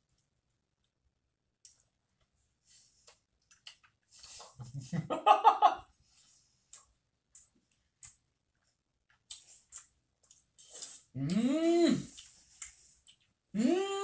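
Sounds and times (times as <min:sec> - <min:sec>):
man laughing: 0:04.6 - 0:05.8.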